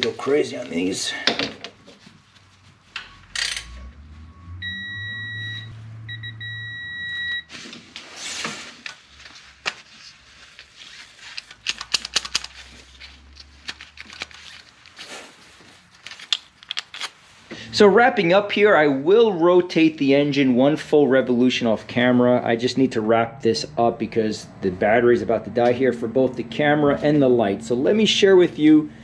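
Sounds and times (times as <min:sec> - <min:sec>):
high electronic beeps: 0:04.3 - 0:07.5
tools clicking and tapping on metal: 0:11.4 - 0:12.6.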